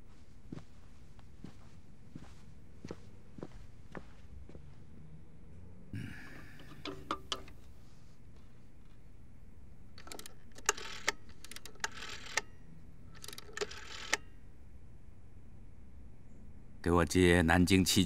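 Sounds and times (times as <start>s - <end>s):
sharp light clicks and rattles: 10.0s - 12.5s, 13.2s - 14.2s.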